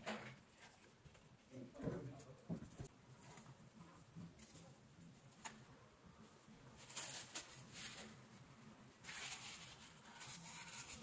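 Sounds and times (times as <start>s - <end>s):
paper tissue rustling: 6.6s - 11.0s.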